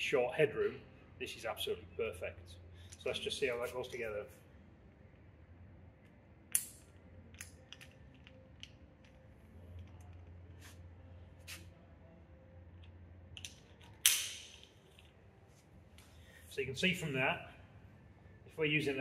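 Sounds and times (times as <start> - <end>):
sharp hardware clack: 13.4 - 14.7.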